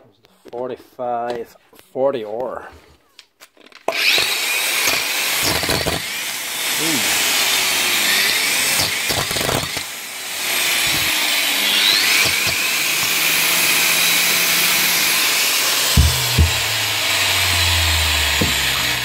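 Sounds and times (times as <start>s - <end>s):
angle grinder running: 3.9s - 19.0s.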